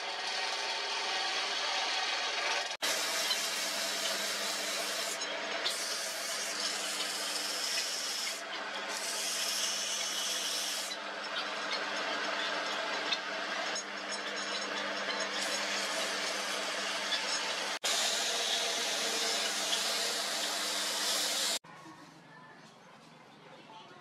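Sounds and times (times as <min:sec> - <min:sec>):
sandpaper hissing on spinning wood: 0:00.0 - 0:11.0, 0:15.4 - 0:21.6
lathe motor hum: 0:00.0 - 0:21.6.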